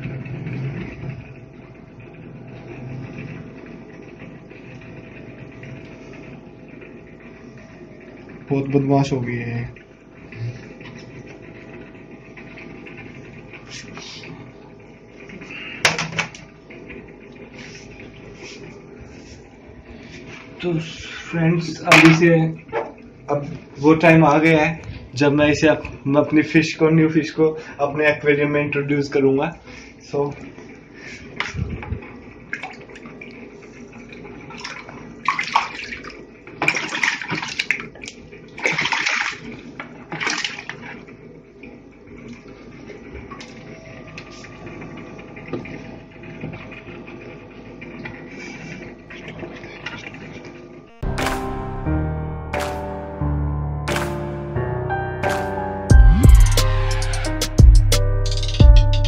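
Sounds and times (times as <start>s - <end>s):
aquarium equipment hum: 0.0s - 58.2s
water splashing and pouring: 32.4s - 41.2s.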